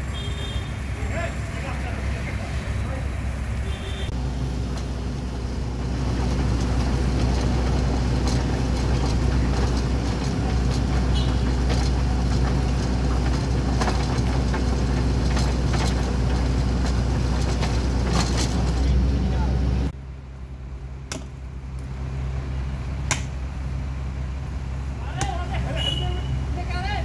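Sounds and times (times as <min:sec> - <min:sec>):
large engine droning: 0:00.0 - 0:27.0
light knocks and clatter: 0:05.8 - 0:18.9.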